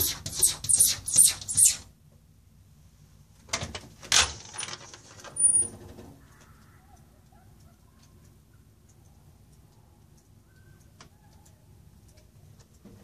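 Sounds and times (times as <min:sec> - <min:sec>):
storm door clicks and rattles: 0:03.4 - 0:06.2
door hinge squeak: 0:05.4 - 0:05.8.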